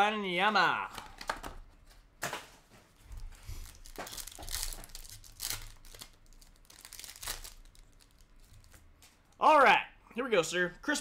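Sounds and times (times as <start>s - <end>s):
foil wrappers crinkling and tearing: 3.2s - 8.8s.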